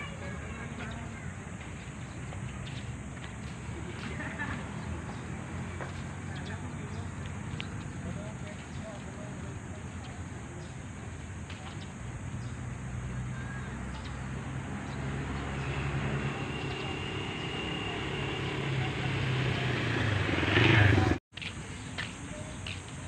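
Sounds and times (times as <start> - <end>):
vehicle engine approaching: 1.5 - 8.5, 12.0 - 21.2.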